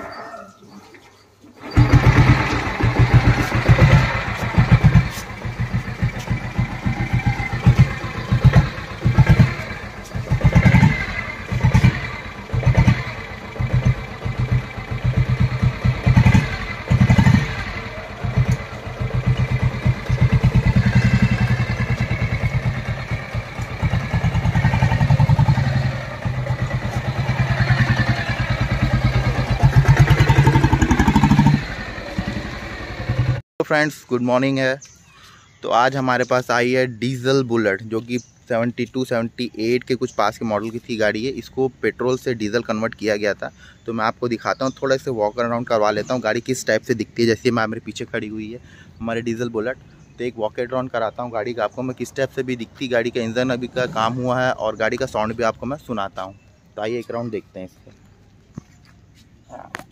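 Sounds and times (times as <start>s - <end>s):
diesel motorcycle engine running: 1.6s - 33.4s
motorcycle throttle revving: 1.6s - 33.4s.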